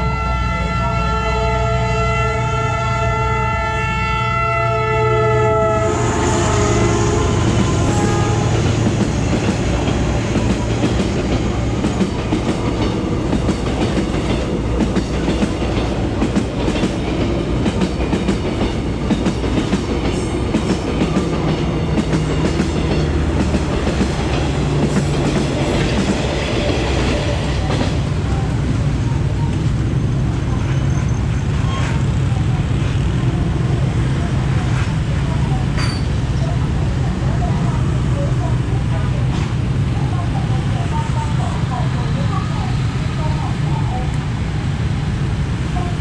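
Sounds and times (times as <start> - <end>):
train horn chord: 0.0 - 8.8
train rumbling past: 0.0 - 46.0.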